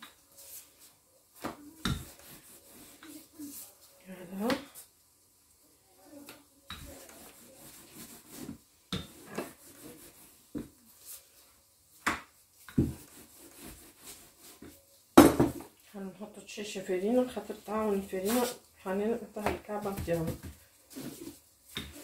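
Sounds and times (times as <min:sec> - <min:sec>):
rolling pin rubbing over dough: 0:00.0 - 0:04.9, 0:06.2 - 0:15.0, 0:16.6 - 0:22.0
rolling pin knocking on counter: 0:15.2 - 0:15.6.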